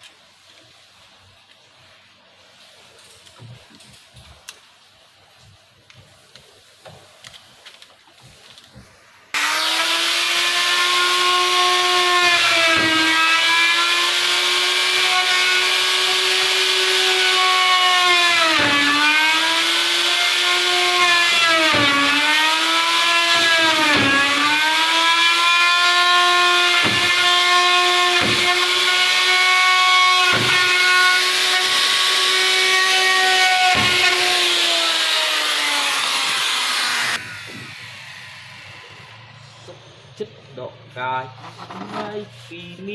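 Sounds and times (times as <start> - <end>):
power tool cutting wood: 9.3 - 40.2.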